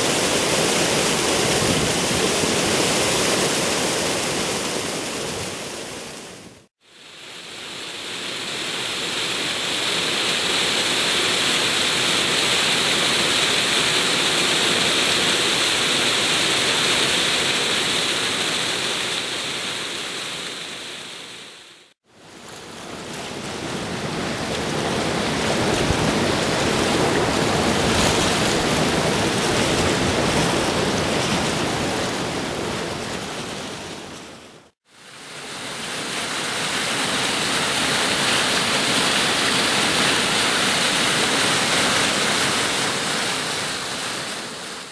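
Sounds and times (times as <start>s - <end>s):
whitewater rushing over rapids: 23.1s - 34.3s, 34.9s - 44.9s.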